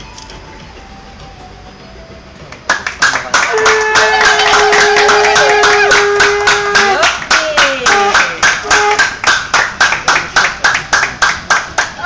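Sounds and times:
group clapping in rhythm: 0:02.5 - 0:12.0.

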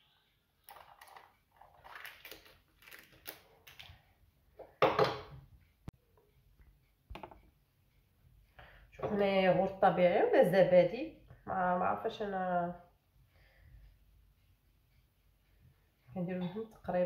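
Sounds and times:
foil lid crinkling: 0:01.8 - 0:03.9.

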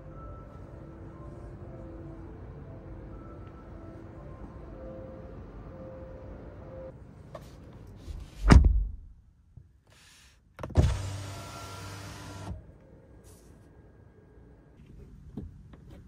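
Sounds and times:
power window motor running: 0:10.8 - 0:12.6.

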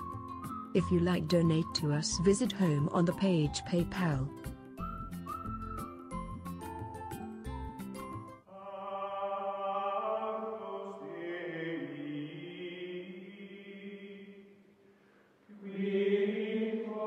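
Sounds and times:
choir-like held chords: 0:08.5 - 0:14.6, 0:15.5 - 0:17.0.

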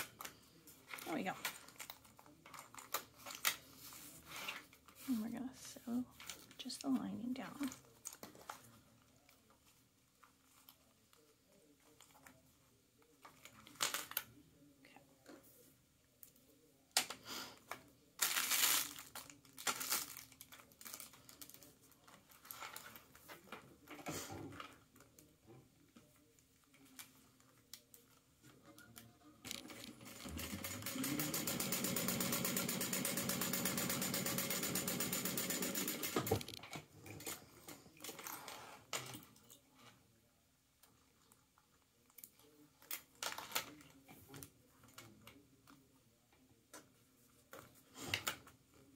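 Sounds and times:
sewing machine stitching: 0:29.7 - 0:36.4.

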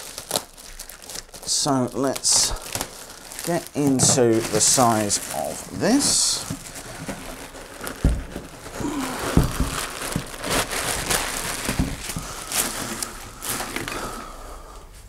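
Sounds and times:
plastic wrapping crinkling: 0:00.0 - 0:14.4.

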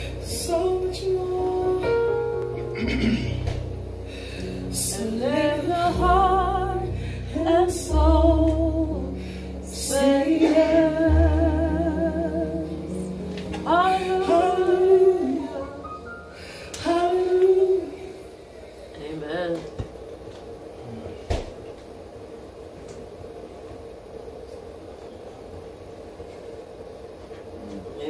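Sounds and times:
deep sustained bass notes: 0:00.0 - 0:16.4
woman singing with vibrato: 0:00.1 - 0:02.4, 0:04.7 - 0:18.3.

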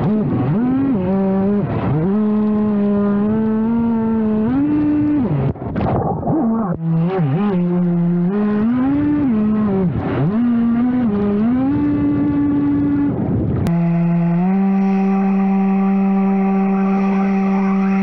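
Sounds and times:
rc boat motor whining: 0:06.7 - 0:18.0.

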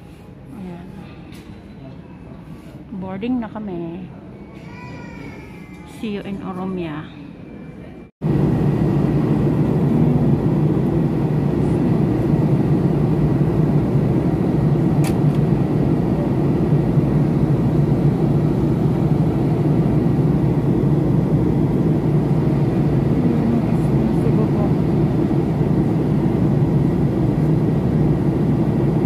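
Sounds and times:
airliner cabin drone: 0:07.8 - 0:29.0.

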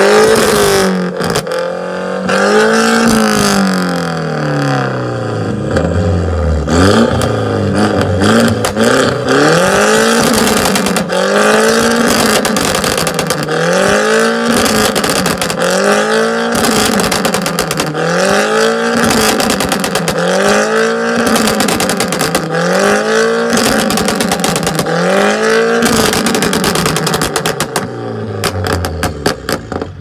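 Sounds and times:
car engine revving: 0:00.0 - 0:30.0
exhaust pops and crackles: 0:00.2 - 0:01.6, 0:07.0 - 0:30.0.

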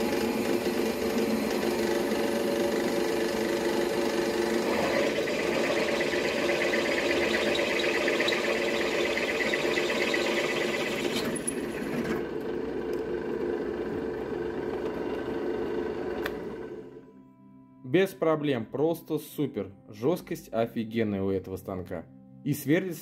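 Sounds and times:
drill bit cutting metal: 0:00.0 - 0:12.2
drill press motor humming: 0:00.0 - 0:17.0.

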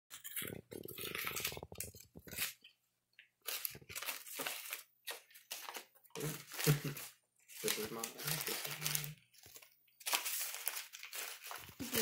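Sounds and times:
paper banknotes crinkling: 0:03.4 - 0:12.0.

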